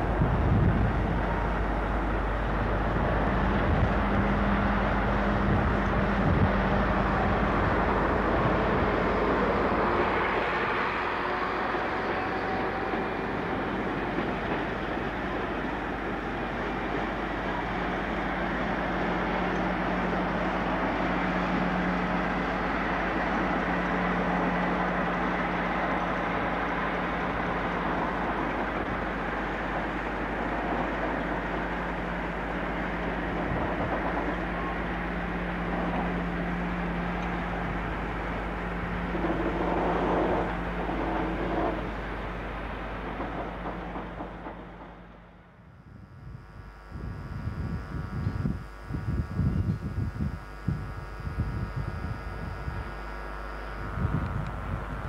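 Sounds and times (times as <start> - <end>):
train rumbling past: 0.0 - 47.8
wagons clattering over rail joints: 23.2 - 45.3.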